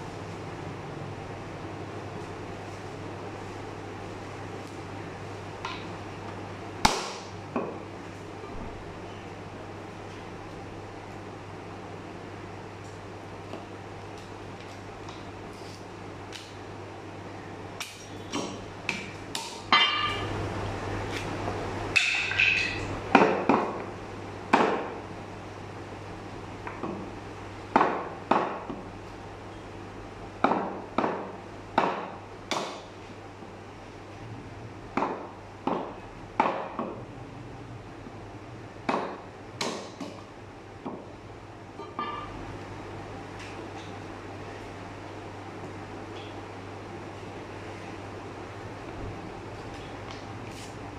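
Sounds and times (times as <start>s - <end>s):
steady low hum: 0.0s - 50.9s
cleaver chopping meat on wood: 6.8s - 7.8s, 30.4s - 32.9s, 38.8s - 40.2s.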